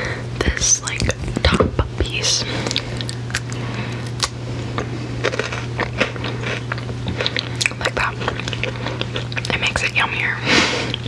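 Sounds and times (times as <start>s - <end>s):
steady low hum: 0.0s - 11.0s
crunching and chewing candy: 2.6s - 11.0s.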